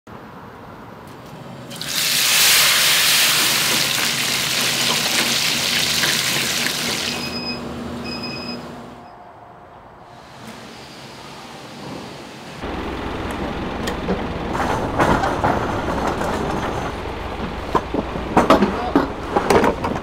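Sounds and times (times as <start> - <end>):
water gushing: 1.7 - 7.4
short electronic beeps: 7.1 - 9.2.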